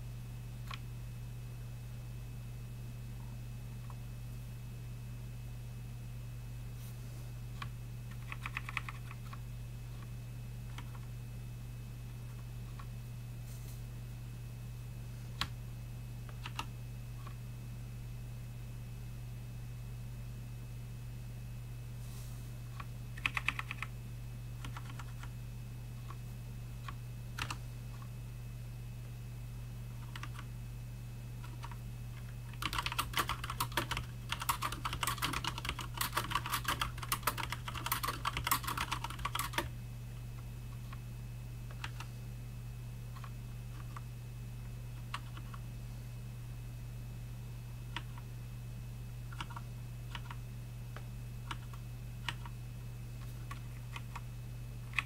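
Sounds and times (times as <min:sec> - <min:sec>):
steady low hum: 0:00.0 - 0:55.0
mechanical keyboard typing: 0:07.6 - 0:09.4, 0:10.7 - 0:11.1, 0:16.3 - 0:16.7, 0:23.2 - 0:23.9, 0:24.6 - 0:25.3, 0:27.4 - 0:27.6, 0:30.0 - 0:30.5, 0:31.4 - 0:39.7, 0:41.7 - 0:42.1, 0:45.1 - 0:45.6, 0:49.3 - 0:50.4, 0:51.5 - 0:52.5.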